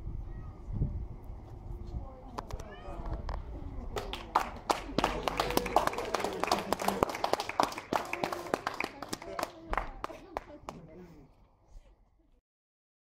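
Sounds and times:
voices: 0.3 - 12.4
people clapping: 3.9 - 11.0.

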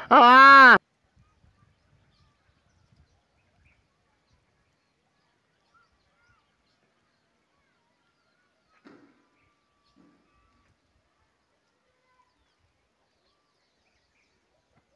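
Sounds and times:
soft bird chirps: 1.2 - 14.9
brief thump: 8.8 - 9.3.

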